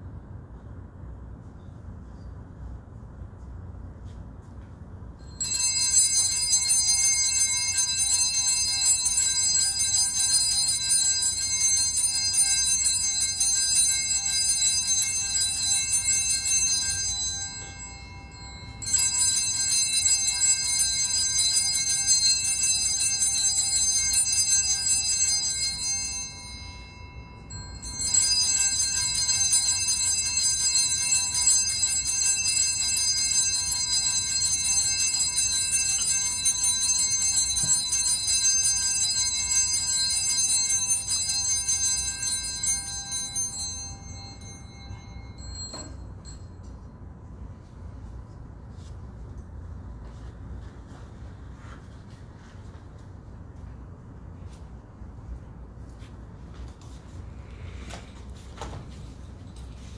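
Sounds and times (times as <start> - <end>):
altar bells ringing: 5.2 - 48.9, 56.9 - 59.9.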